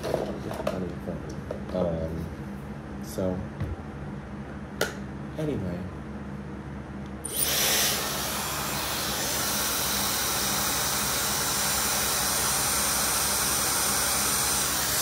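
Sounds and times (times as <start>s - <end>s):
hair dryer blowing air: 7.2s - 15.0s.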